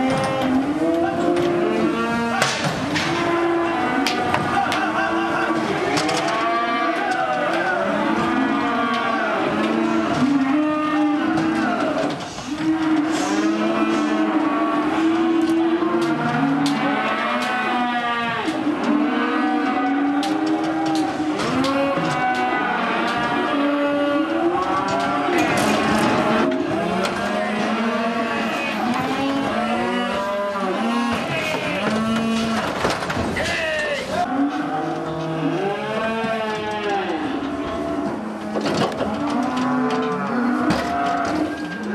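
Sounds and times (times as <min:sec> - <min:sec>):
calves mooing and bawling: 0:00.0 - 0:33.0, 0:34.2 - 0:41.9.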